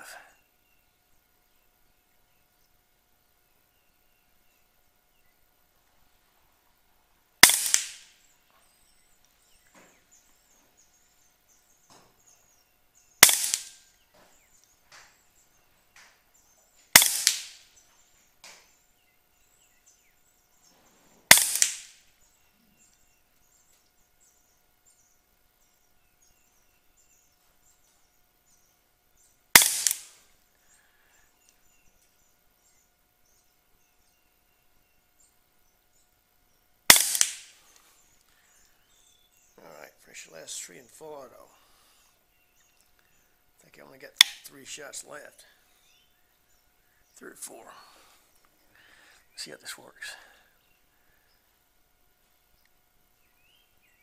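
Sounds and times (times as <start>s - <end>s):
air rifle shots: 7.4s - 8.2s, 13.2s - 13.8s, 16.9s - 17.7s, 21.3s - 22.0s, 29.5s - 30.2s, 36.9s - 37.7s.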